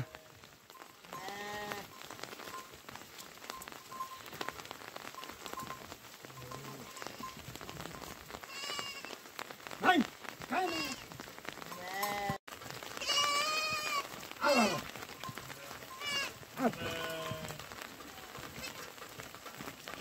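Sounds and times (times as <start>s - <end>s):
sheep and goats bleating: 0.0s - 2.4s, 6.2s - 9.2s, 10.5s - 19.0s
steady rain: 0.0s - 20.0s.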